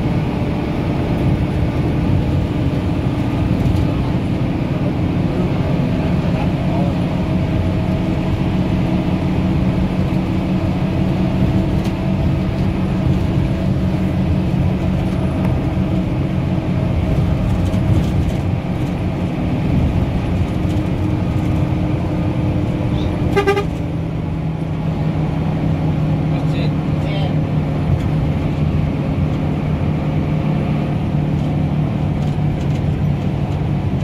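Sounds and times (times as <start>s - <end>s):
vehicle engine and road noise: 0.0s - 34.0s
vehicle horn toot: 23.3s - 23.9s.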